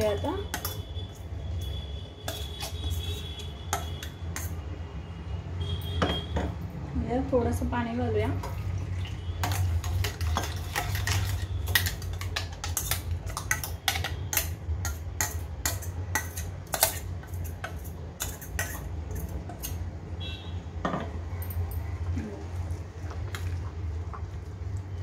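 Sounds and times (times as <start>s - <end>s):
metal jar clicks and scrapes: 9.4s - 19.8s.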